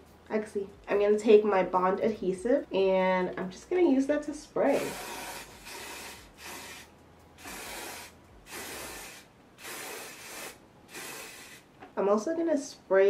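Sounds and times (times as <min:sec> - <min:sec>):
aerosol spray hissing: 0:07.4 - 0:11.6.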